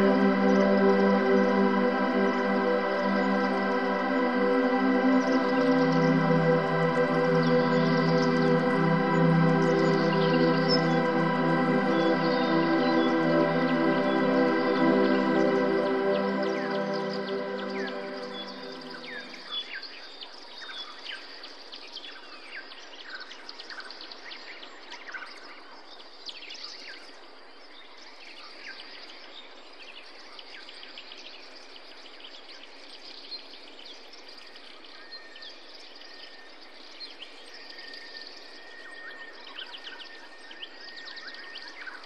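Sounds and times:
birds chirping: 0.0 - 19.6
thin whistle-like tone: 37.5 - 42.0.

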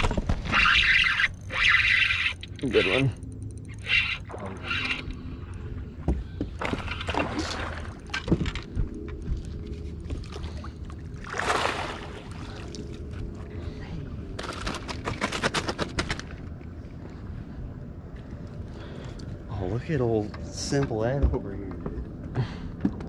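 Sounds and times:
steady low hum: 0.0 - 23.0
fish splashing: 6.6 - 8.1, 10.2 - 13.0.

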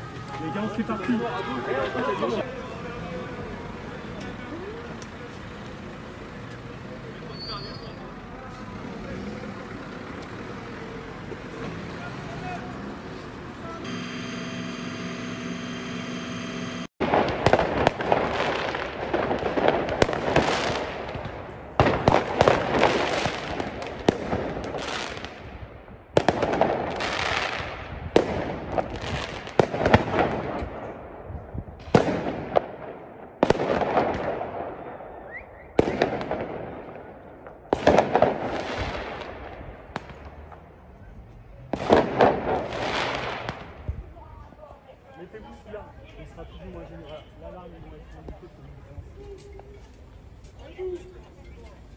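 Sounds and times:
steady engine hum: 0.0 - 17.0
firework mortar bangs and crackles: 17.0 - 44.8.

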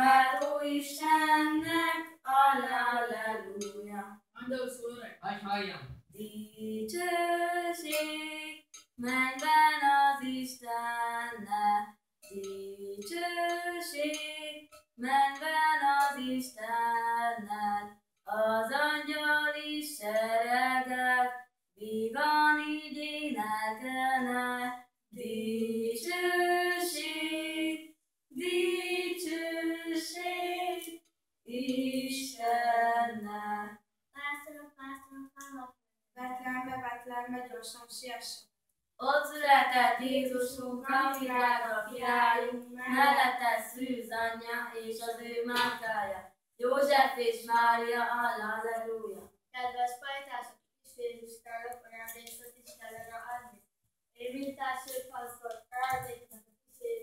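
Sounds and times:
girls singing unaccompanied: 0.0 - 4.2, 6.2 - 33.8, 39.0 - 49.2, 51.5 - 53.5.

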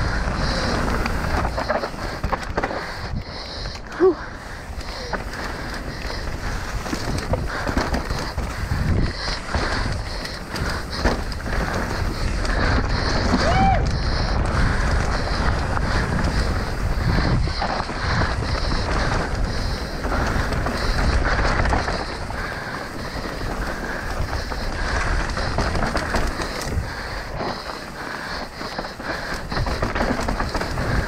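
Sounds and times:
mountain bike rattling on rocky trail: 0.0 - 31.0
wind buffeting microphone: 0.0 - 31.0.

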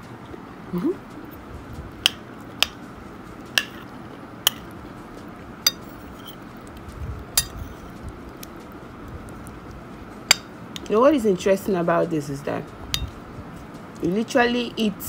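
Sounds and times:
metal spoon clinking on plate: 4.5 - 4.7, 5.7 - 6.4, 7.4 - 8.0, 13.0 - 13.2.

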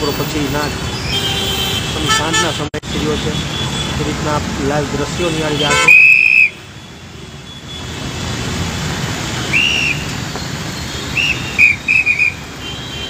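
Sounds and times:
road traffic: 0.0 - 13.0
heavy rain: 7.1 - 13.0.

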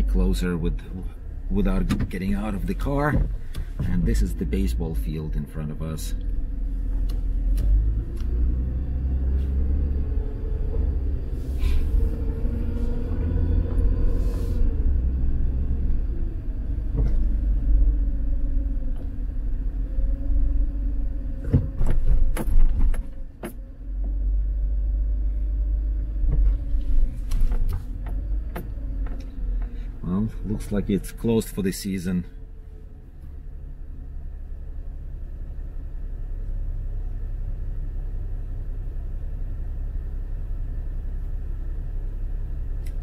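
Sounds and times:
car engine and road rumble: 0.0 - 43.0.

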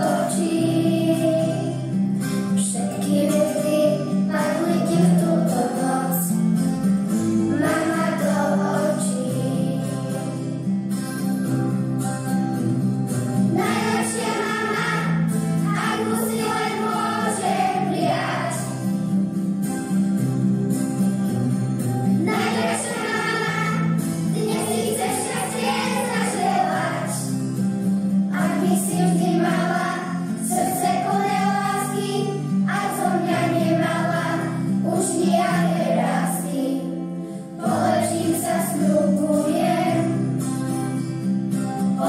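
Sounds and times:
children singing in unison: 0.0 - 1.8, 7.5 - 10.2, 13.5 - 18.9, 22.2 - 27.3, 28.4 - 36.9, 37.6 - 40.3
instrumental backing music: 0.0 - 42.0.

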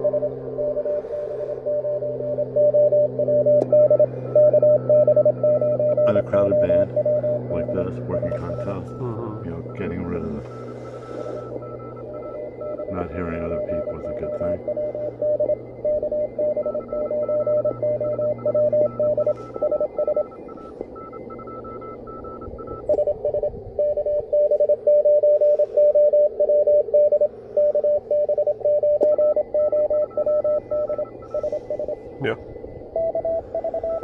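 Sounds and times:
higher pitched morse keying: 0.0 - 34.0
morse code tone: 0.0 - 34.0
radio band hiss: 6.1 - 15.2, 31.1 - 32.5.

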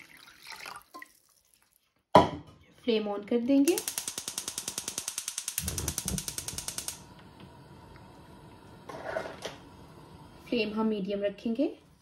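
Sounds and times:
gas stove igniter clicking: 3.7 - 8.1
gas burner whoosh: 5.4 - 10.9.

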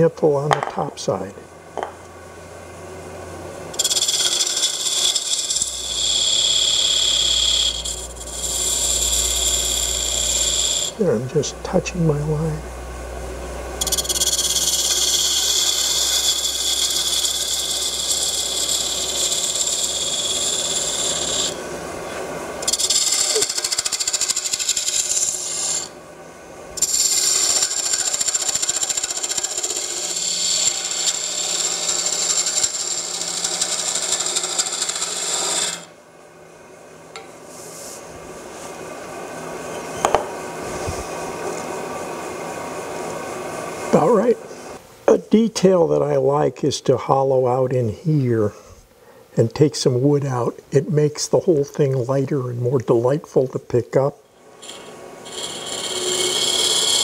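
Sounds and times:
lathe tool cutting wood: 3.7 - 12.8, 13.7 - 26.0, 26.8 - 36.0, 54.6 - 57.0.

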